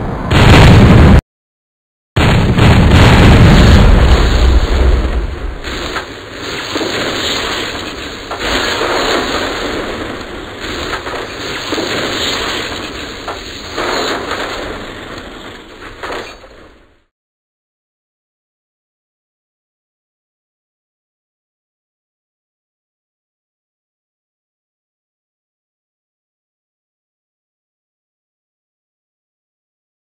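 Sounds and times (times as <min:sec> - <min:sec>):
explosion low rumble: 0:00.0 - 0:01.2, 0:02.2 - 0:16.1.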